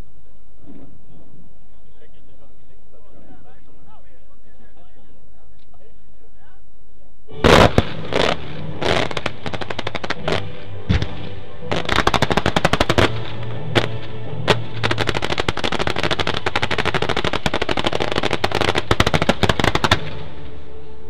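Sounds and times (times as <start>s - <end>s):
music: 7.3s - 21.0s
fireworks popping: 7.4s - 20.3s
firework bangs: 7.4s - 20.6s.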